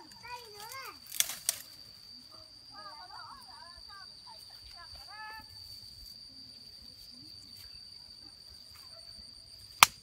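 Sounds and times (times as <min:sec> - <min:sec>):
dry twigs crackling: 0:00.0 - 0:02.1
insect chirring: 0:00.0 - 0:10.0.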